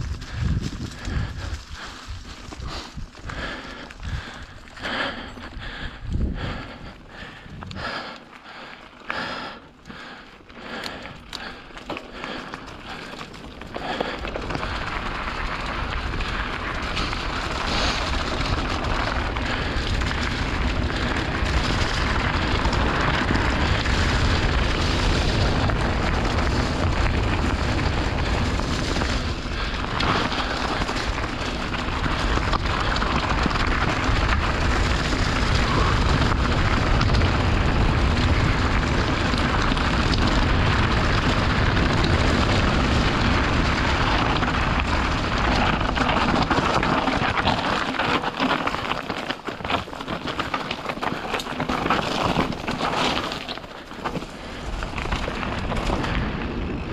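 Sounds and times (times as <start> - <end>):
wind buffeting microphone: 0.0 - 8.0
bike rattling: 0.0 - 56.9
tyres crunching on gravel: 0.0 - 56.9.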